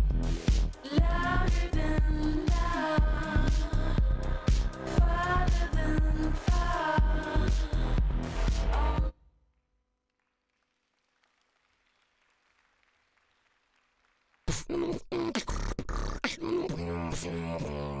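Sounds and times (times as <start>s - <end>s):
person beatboxing: 14.5s - 18.0s.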